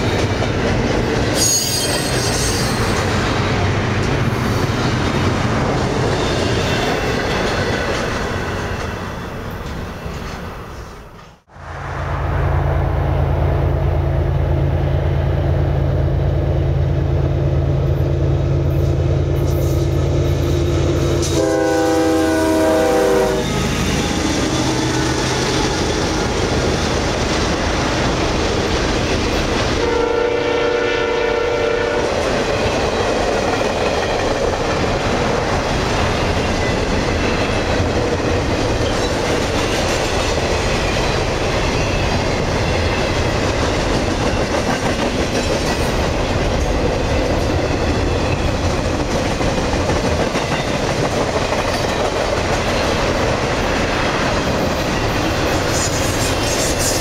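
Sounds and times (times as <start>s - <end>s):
diesel locomotive drone: 0.0s - 57.0s
train chord horn: 21.2s - 23.7s, 29.8s - 32.1s
freight cars clickety-clack: 31.9s - 57.0s.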